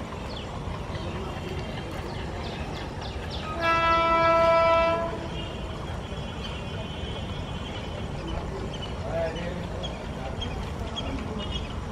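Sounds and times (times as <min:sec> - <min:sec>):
freight train rumble: 0:00.0 - 0:11.9
locomotive air horn blast: 0:03.4 - 0:05.5.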